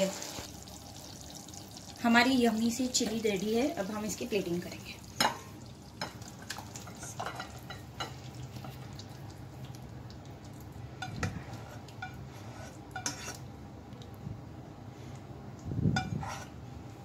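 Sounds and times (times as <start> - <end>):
low steady hum: 0.2 - 17.0
spatula scraping a nonstick pan: 11.0 - 13.5, 16.0 - 16.6.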